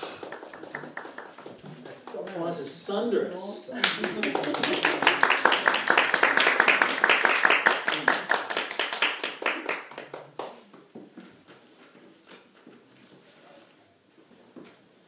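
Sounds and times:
small group clapping: 0:00.0 - 0:02.6, 0:03.8 - 0:11.0.

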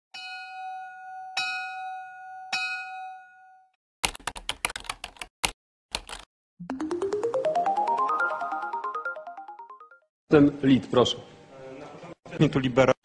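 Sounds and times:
ringing bell-like tone: 0:00.2 - 0:03.7
computer keyboard typing: 0:04.0 - 0:06.3.

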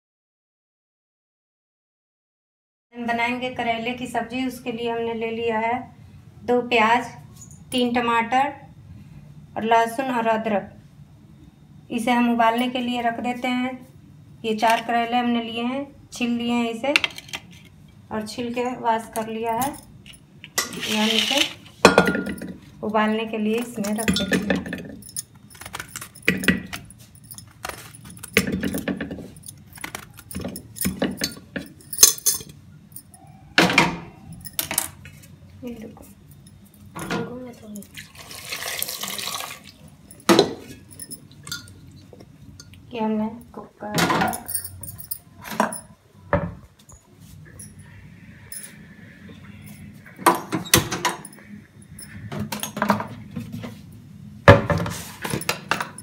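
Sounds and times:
knife clinking on metal pot: 0:23.6 - 0:32.6, 0:40.1 - 0:42.8
metal clatter: 0:23.6 - 0:32.6.

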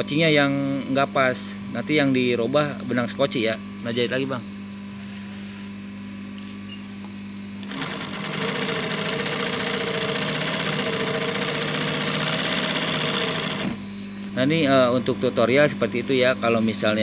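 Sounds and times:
sewing machine stitching: 0:07.6 - 0:13.8
sewing machine motor hum: 0:07.6 - 0:13.9.

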